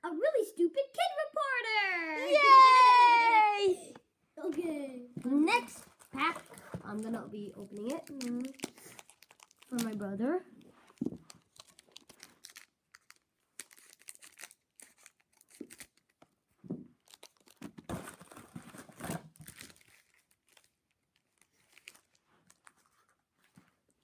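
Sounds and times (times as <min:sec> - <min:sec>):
wrapper tearing and crinkling: 0:05.7 - 0:10.1, 0:10.8 - 0:16.3, 0:17.0 - 0:23.1.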